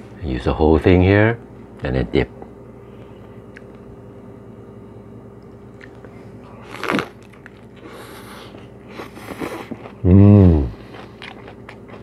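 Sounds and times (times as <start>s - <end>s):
person biting and chewing food: 5.4s - 12.0s.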